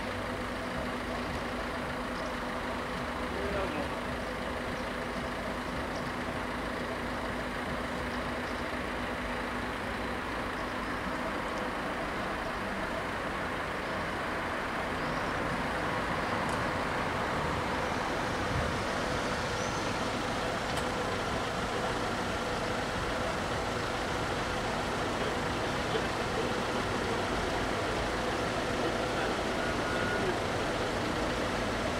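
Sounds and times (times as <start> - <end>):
faint steady tones: 0.0 - 31.9
road traffic idling: 0.0 - 31.9.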